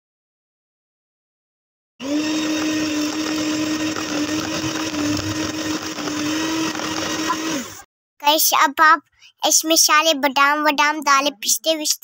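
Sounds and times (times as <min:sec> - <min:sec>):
electric kitchen mixer motor humming: 0:02.0 - 0:07.8.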